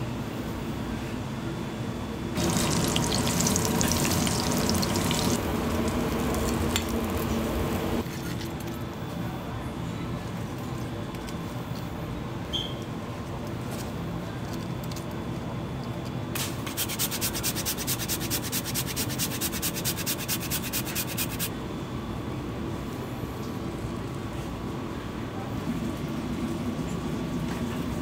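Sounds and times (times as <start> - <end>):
steady kitchen hum: 0.0 - 28.0
fast scraping strokes: 16.7 - 21.5.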